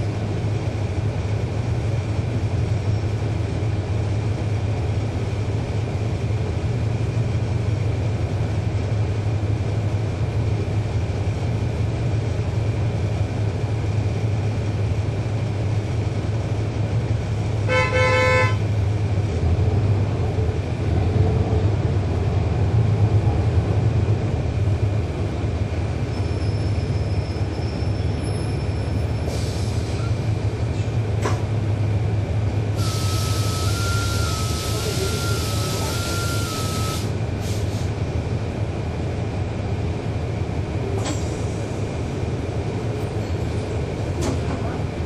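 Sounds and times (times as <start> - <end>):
bus engine rumble: 0.0 - 45.0
road noise: 0.0 - 45.0
vehicle horn toot: 17.7 - 18.6.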